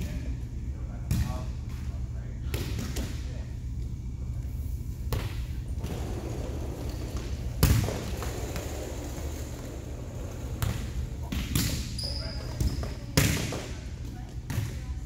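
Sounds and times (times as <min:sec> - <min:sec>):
steady low hum: 0:00.0 - 0:15.0
volleyballs thumping: 0:05.0 - 0:06.0, 0:06.8 - 0:15.0.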